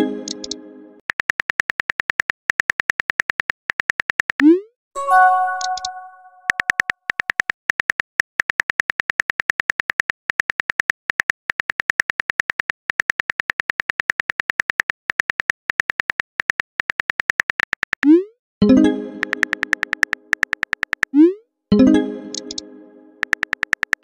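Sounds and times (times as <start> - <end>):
phone keyboard clicks: 5.6 - 18.1, 19.2 - 21.1, 22.3 - 22.6, 23.2 - 24.0.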